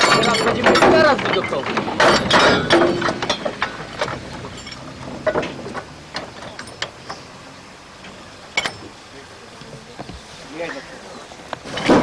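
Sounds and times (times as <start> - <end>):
railway coupling clicks and knocks: 0.0 - 7.3, 8.0 - 9.0.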